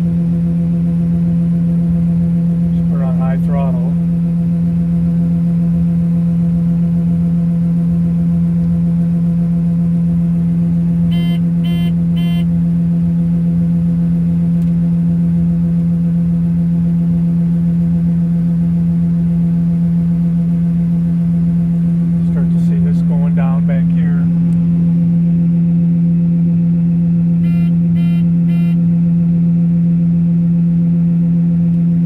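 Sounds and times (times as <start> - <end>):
combine harvester low drone: 0.0 - 32.0
short electronic beeps: 11.1 - 12.5, 27.4 - 28.8.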